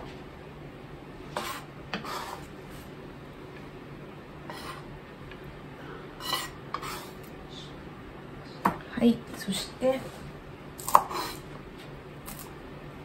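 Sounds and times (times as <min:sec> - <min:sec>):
knife scraping a cutting board: 0:01.3 - 0:02.9, 0:04.5 - 0:04.9, 0:06.2 - 0:07.3, 0:10.8 - 0:11.5.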